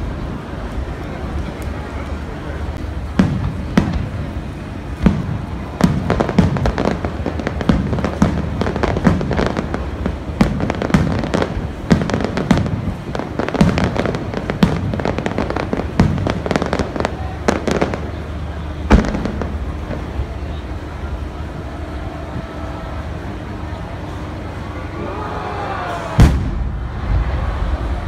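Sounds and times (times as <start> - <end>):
fireworks bangs: 0.0 - 23.2, 26.0 - 28.0
low rumble: 26.2 - 28.0.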